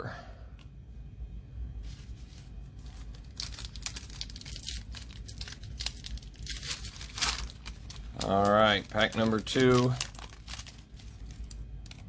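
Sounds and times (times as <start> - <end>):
foil wrapper crinkling: 2.8 - 12.0.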